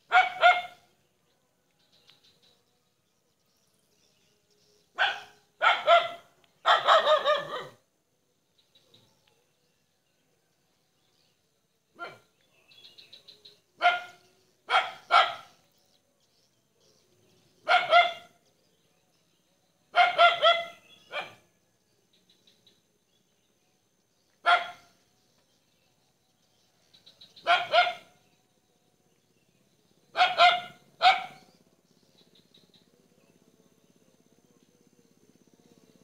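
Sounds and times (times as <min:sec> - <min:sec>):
dog barking: 0:00.1 - 0:00.8, 0:05.0 - 0:07.8, 0:12.0 - 0:12.3, 0:13.8 - 0:15.6, 0:17.6 - 0:18.4, 0:19.9 - 0:21.5, 0:24.4 - 0:25.0, 0:27.4 - 0:28.2, 0:30.1 - 0:31.5.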